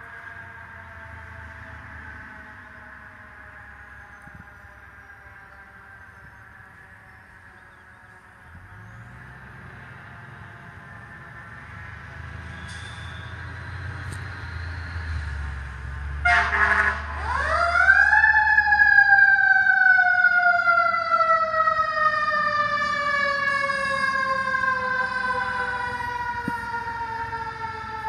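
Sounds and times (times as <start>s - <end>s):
fire truck siren: 0.0s - 28.0s
truck engine rumbling: 0.0s - 28.0s
loud horn blast: 16.2s - 17.2s.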